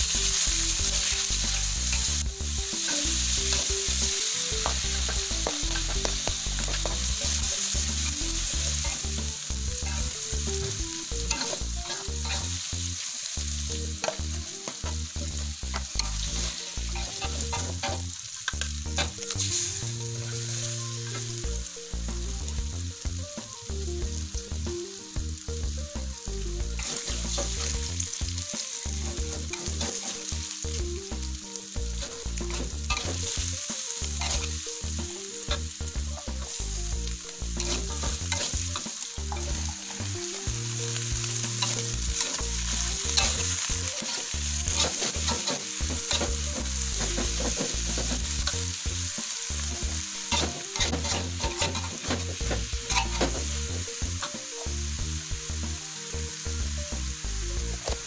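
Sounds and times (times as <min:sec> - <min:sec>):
metal spatula scraping a wok: 0:00.0 - 0:04.1, 0:04.9 - 0:21.2, 0:26.8 - 0:27.8, 0:29.0 - 0:30.3, 0:31.9 - 0:34.8, 0:37.6 - 0:40.4, 0:41.4 - 0:48.7, 0:49.6 - 0:54.5
food sizzling in hot oil: 0:00.0 - 0:58.0.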